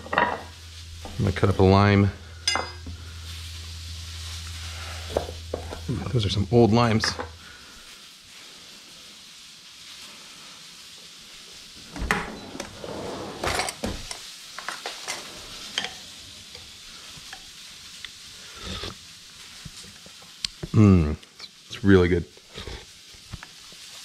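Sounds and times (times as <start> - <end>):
food sizzling on griddle: 0.0 - 12.0, 13.1 - 24.0
spoon clinking: 2.4 - 2.9.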